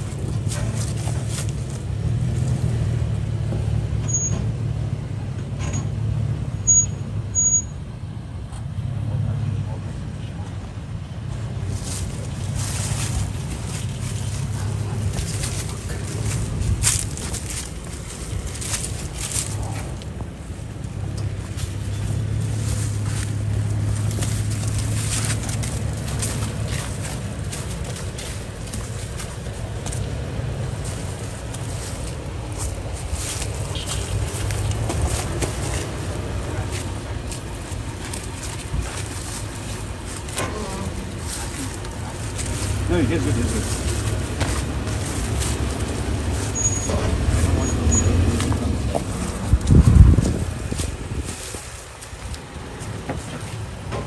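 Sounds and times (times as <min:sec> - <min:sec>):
footsteps on dry leaves: 0:00.0 - 0:02.8, 0:11.6 - 0:53.9
engine running at low crawl: 0:00.0 - 0:54.0
short high squeaks: 0:04.0 - 0:04.4, 0:46.5 - 0:48.2.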